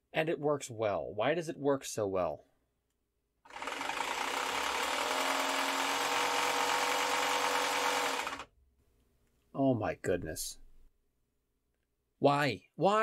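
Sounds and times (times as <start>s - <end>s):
drill motor running: 3.5s - 8.5s.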